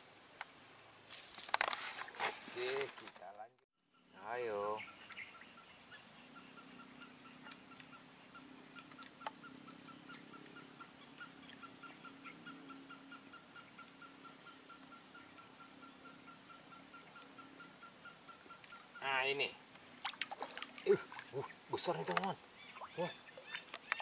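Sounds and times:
insect chorus chirping: 0.0s - 24.0s.

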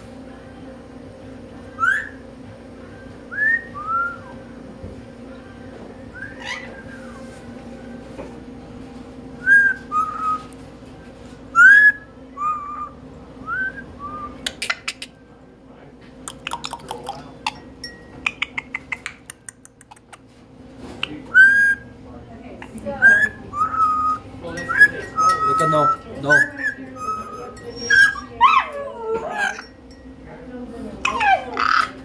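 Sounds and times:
parrot whistling: 1.8s - 2.2s, 3.3s - 4.4s, 6.1s - 7.3s, 9.4s - 10.5s, 11.5s - 15.1s, 16.3s - 19.3s, 21.0s - 21.9s, 23.0s - 29.8s
parrot clicking: 14.4s - 15.1s, 16.3s - 17.6s, 18.2s - 20.3s.

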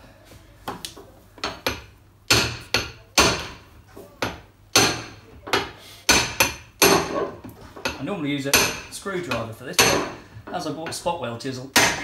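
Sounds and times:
hammer striking a chisel: 1.4s - 7.2s, 7.8s - 10.2s, 11.8s - 12.0s.

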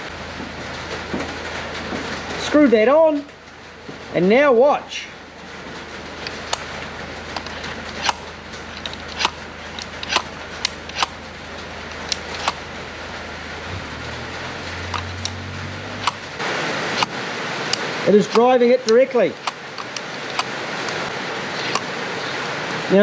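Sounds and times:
steady low hum: 0.0s - 22.8s
throttle linkage clicking: 7.3s - 11.2s, 16.0s - 16.3s.

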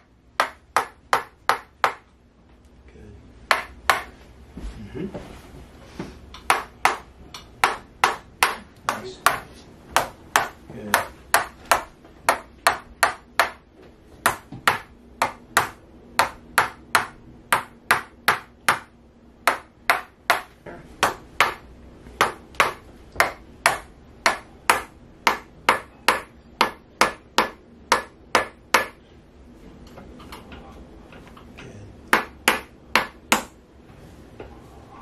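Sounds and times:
mallet tapping a stick: 0.4s - 2.1s, 3.5s - 4.1s, 6.4s - 13.6s, 14.3s - 29.0s.

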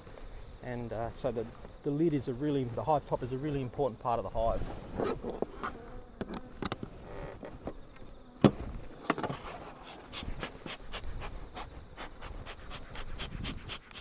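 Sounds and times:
honeybees buzzing: 4.7s - 14.0s.

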